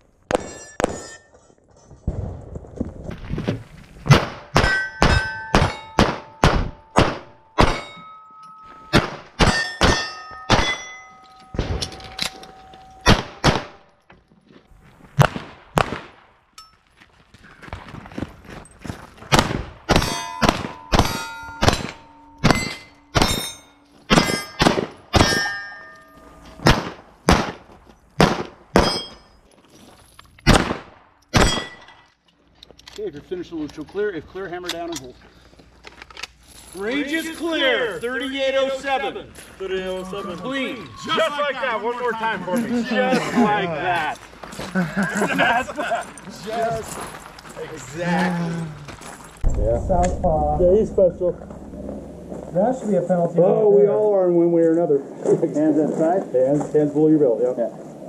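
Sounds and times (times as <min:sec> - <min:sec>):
steel targets ringing: 0:00.3 - 0:01.3, 0:04.5 - 0:13.9, 0:19.9 - 0:27.3, 0:28.8 - 0:29.4, 0:31.4 - 0:32.0
pistol shots: 0:04.1 - 0:08.0, 0:08.9 - 0:11.0, 0:13.0 - 0:13.8, 0:15.2 - 0:16.3, 0:19.3 - 0:23.5, 0:24.1 - 0:25.6, 0:26.6 - 0:29.1, 0:30.4 - 0:31.9.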